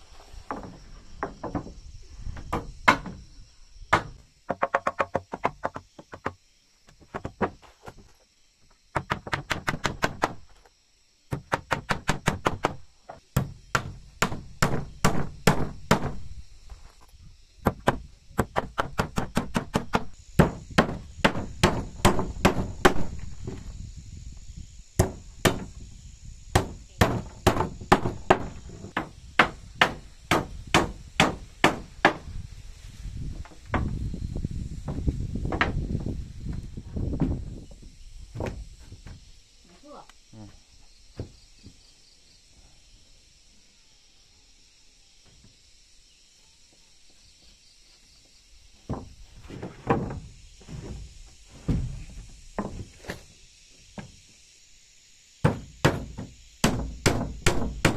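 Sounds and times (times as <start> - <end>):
hammer driving nails into wood: 55.5 - 57.9.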